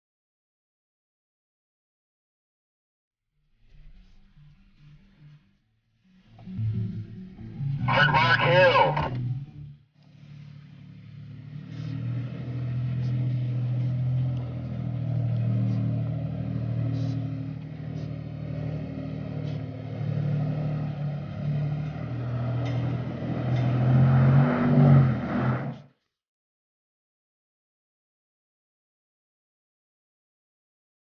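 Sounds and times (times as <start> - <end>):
pickup truck engine under load: 11.1 - 25.7.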